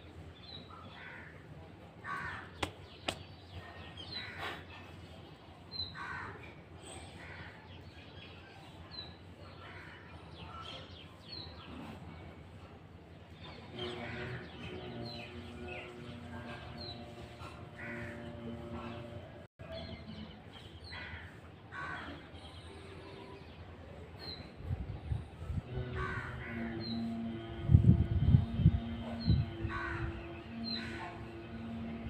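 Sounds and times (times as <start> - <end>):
crows cawing: 2.0 - 2.7, 6.0 - 6.4, 26.0 - 26.8, 29.7 - 31.0
steady low hum: 11.7 - 20.5, 22.2 - 32.0.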